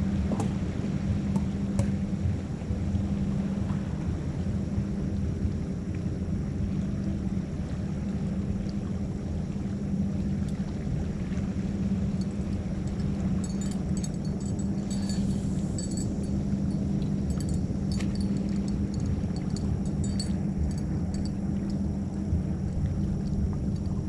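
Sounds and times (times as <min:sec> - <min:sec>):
low mechanical hum: 0:00.0 - 0:24.0
faint metallic clinks: 0:12.2 - 0:21.8.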